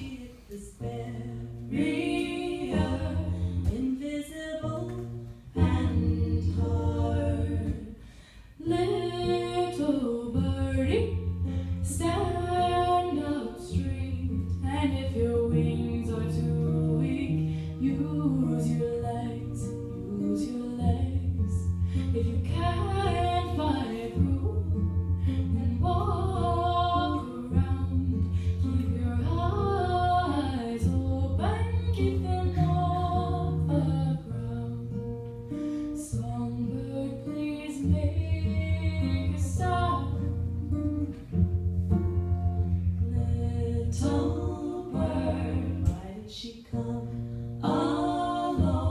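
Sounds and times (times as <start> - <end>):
person singing: 0.0 - 8.0, 43.0 - 48.9
acoustic guitar: 0.0 - 48.9.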